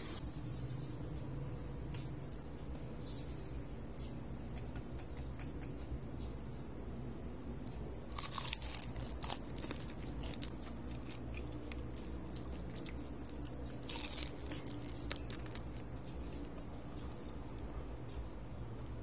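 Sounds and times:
soft crunching and chewing: 7.4 - 18.4
loud crunching of fried food: 7.5 - 17.8.

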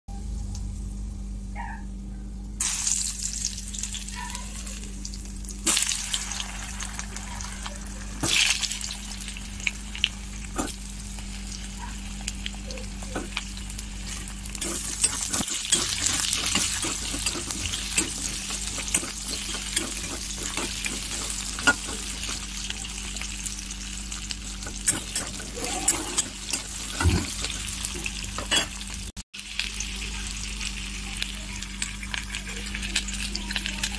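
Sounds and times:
potatoes sizzling in oil: 2.6 - 33.9
stirring clicks and scrapes: 14.6 - 22.7, 24.6 - 28.6.

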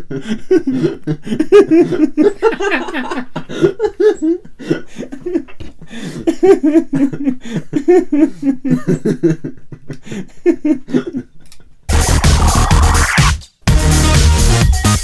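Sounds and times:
man laughing: 0.0 - 12.6.

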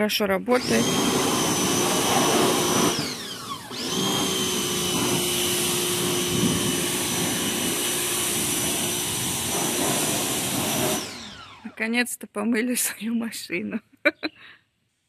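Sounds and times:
pressure washer motor whine: 0.6 - 11.8.

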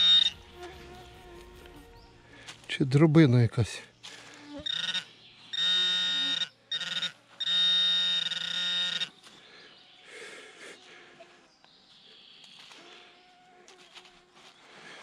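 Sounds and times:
pinpointer buzzing: 0.0 - 1.9, 4.4 - 9.3.

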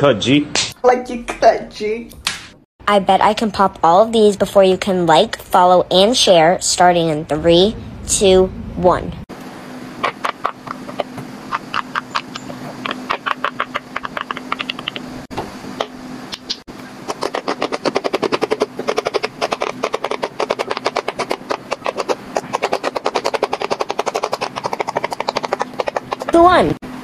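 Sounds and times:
fidget toy popping clicks: 10.2 - 15.0.

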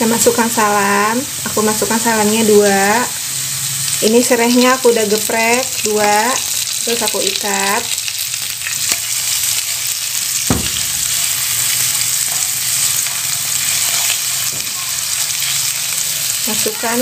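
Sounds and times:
spice paste sizzling in oil: 0.0 - 17.0
sharp knock: 10.5 - 11.1
spatula stirring in pan: 10.8 - 16.1.

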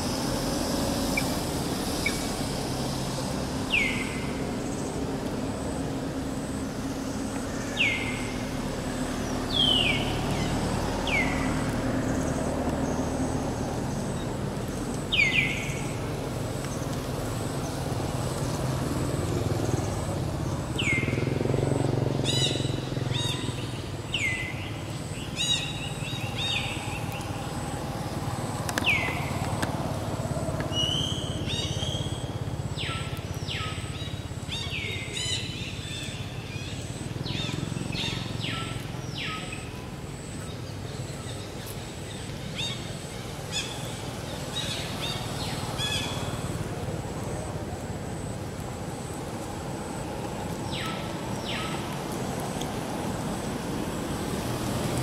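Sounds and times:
road traffic rumble: 0.0 - 55.0
birds chirping: 6.4 - 48.3, 50.6 - 52.0.

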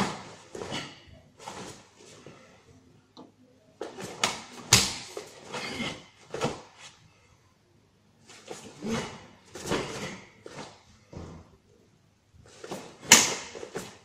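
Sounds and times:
karate gi swishing and snapping: 0.0 - 2.3, 3.8 - 7.0, 8.2 - 10.8, 12.5 - 14.0
bare feet slapping on mats: 3.8 - 5.5.

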